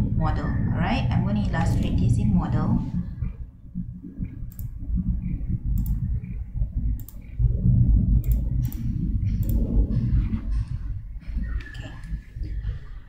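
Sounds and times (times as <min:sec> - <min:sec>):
low background rumble: 0:00.0 - 0:13.0
computer mouse clicks: 0:04.5 - 0:04.8, 0:05.8 - 0:06.4, 0:07.0 - 0:07.4, 0:08.2 - 0:09.8.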